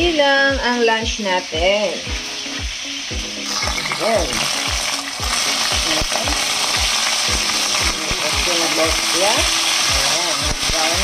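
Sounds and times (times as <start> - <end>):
chicken sizzling in oil: 0.0 - 11.0
music beat: 0.0 - 11.0.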